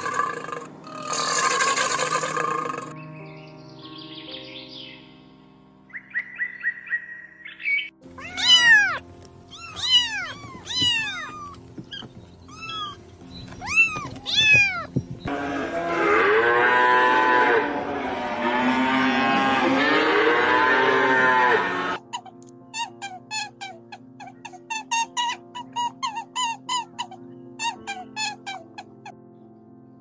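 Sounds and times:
kittens mewing: 0.0s - 2.9s, 8.1s - 15.3s
soft music: 0.0s - 30.0s
bird chirps: 5.9s - 15.3s.

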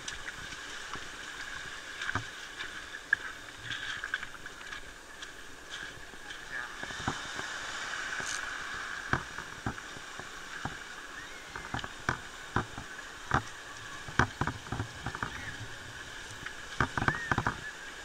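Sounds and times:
footsteps on beach cobbles: 0.0s - 17.8s
steady hiss: 4.5s - 18.0s.

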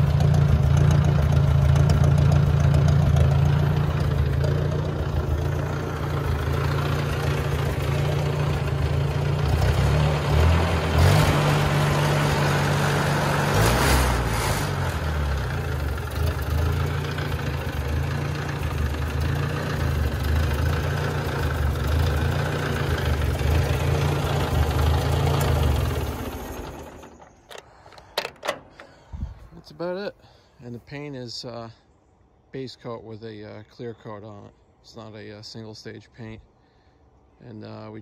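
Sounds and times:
tractor engine idling: 0.0s - 13.6s, 14.2s - 31.1s
engine winding down: 0.0s - 29.4s
clicks: 27.0s - 29.4s.

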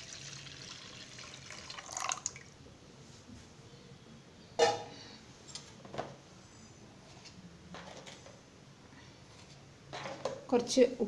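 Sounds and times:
water pouring into pan: 0.0s - 2.5s.

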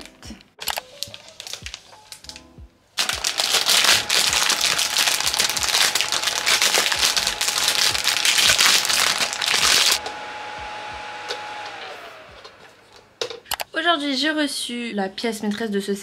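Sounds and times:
plastic wrap crinkling: 0.6s - 2.4s, 3.0s - 10.0s.

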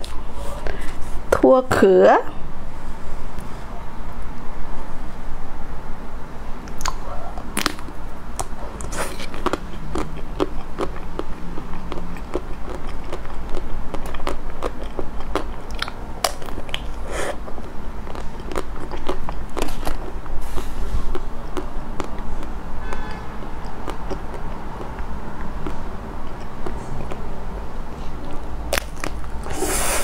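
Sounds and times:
chewing: 6.7s - 27.3s, 28.1s - 30.0s.

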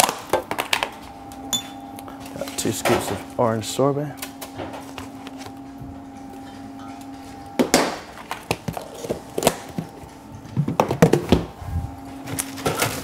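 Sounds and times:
low hum: 1.0s - 2.6s.

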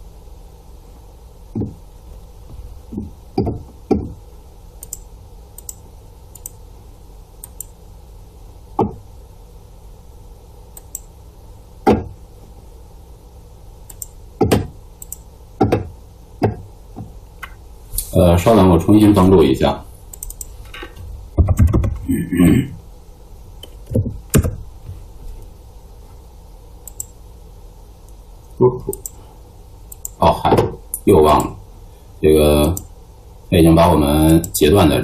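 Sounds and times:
low electrical hum: 0.0s - 35.0s
computer mouse clicks: 4.8s - 6.6s, 7.4s - 7.8s, 10.7s - 11.1s, 13.8s - 15.8s, 20.1s - 20.6s, 26.8s - 27.2s, 28.9s - 29.2s, 29.9s - 30.2s
desk knocks: 11.9s - 12.1s, 15.6s - 16.6s.

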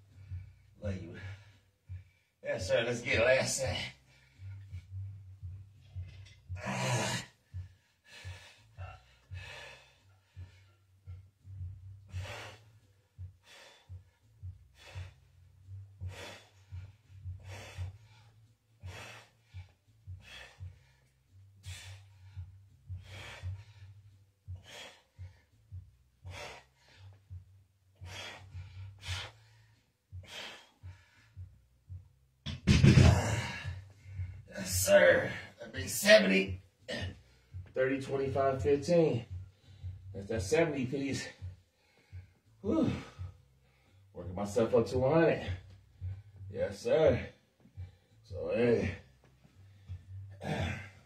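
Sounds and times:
man breathing hard: 0.0s - 2.4s, 3.7s - 32.1s, 33.0s - 35.6s, 36.8s - 37.8s, 39.2s - 40.2s, 41.0s - 44.2s, 45.4s - 51.0s
low steady hum: 0.0s - 51.0s.

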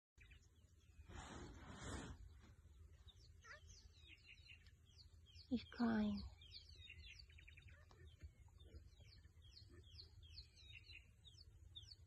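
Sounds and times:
small birds chirping and trilling: 0.2s - 12.0s.

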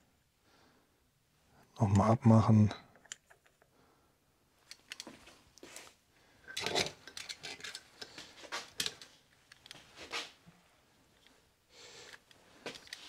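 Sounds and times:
metal gear parts clinking: 6.5s - 7.8s
metal parts rubbing: 6.5s - 8.1s.

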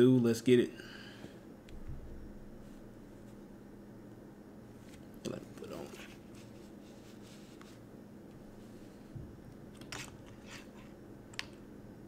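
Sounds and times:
soft low thump: 1.8s - 2.6s
scratchy rustles: 5.8s - 7.8s.

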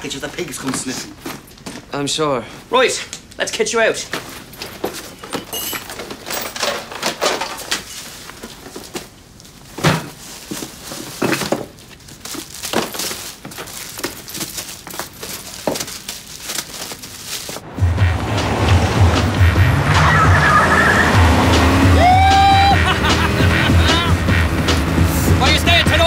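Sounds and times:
items knocking and clattering: 0.4s - 1.9s, 4.1s - 17.6s
plastic bags crinkling: 4.2s - 17.6s.

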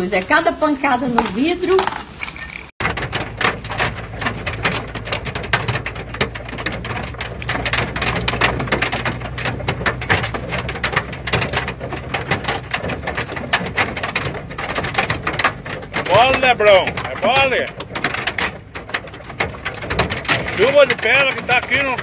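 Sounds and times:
car driving drone: 2.8s - 22.0s
hail hitting car roof: 2.8s - 22.0s.

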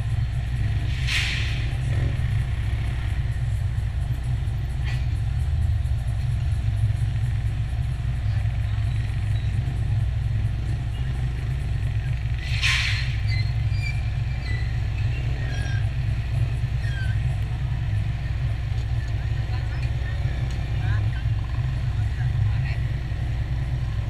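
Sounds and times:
motorcycles passing: 0.0s - 24.0s
road traffic rumble: 0.0s - 24.0s
brief hiss: 1.0s - 1.7s.

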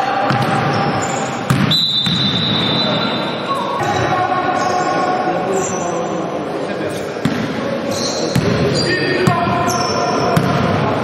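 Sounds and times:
players' voices: 0.0s - 11.0s
basketball bouncing: 0.2s - 0.9s, 1.5s - 2.4s, 7.2s - 7.5s, 10.3s - 10.8s
referee's whistle blast: 1.0s - 3.5s.

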